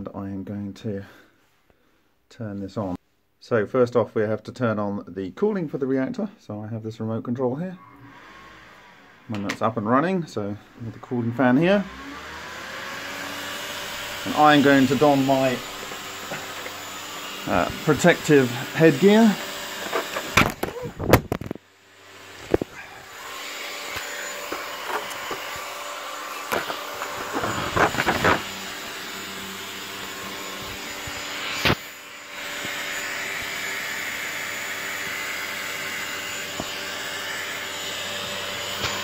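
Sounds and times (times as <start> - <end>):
electric cooling fan running: 8.0 - 39.0.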